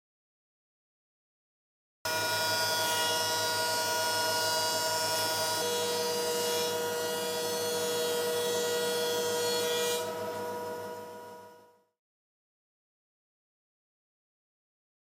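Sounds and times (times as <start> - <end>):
thickness planer droning and whining: 2.1 - 11.8.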